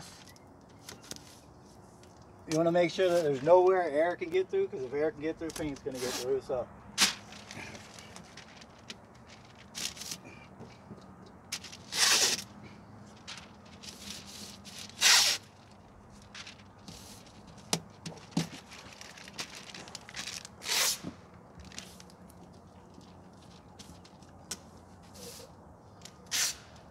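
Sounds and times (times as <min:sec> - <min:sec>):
ticks and rustles of paper: 0:00.0 - 0:04.5, 0:05.2 - 0:06.4, 0:07.0 - 0:10.8, 0:11.5 - 0:25.2
masking tape ripping: 0:05.5 - 0:06.4, 0:07.0 - 0:10.3, 0:11.5 - 0:12.6, 0:13.2 - 0:22.2, 0:26.1 - 0:26.9.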